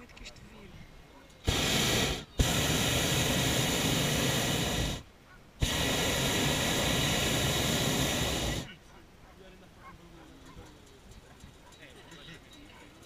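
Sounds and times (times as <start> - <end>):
propane burner hissing: 1.4 - 8.8.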